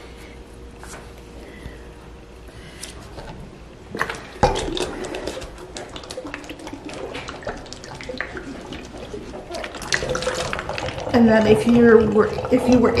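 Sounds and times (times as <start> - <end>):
water gurgling down a bottle: 4.1 - 13.0.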